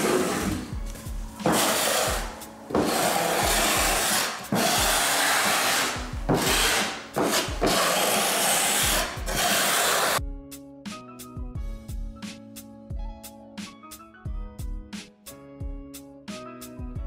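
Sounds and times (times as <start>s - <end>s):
trowel scraping across subfloor: 0.0s - 10.2s.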